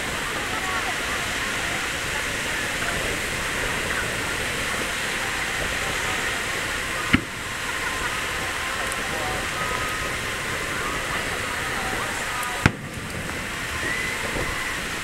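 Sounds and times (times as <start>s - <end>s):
crowd murmur: 0.0s - 15.0s
noisy wash: 0.0s - 15.0s
sharp firework bang: 7.1s - 7.5s, 12.6s - 13.4s.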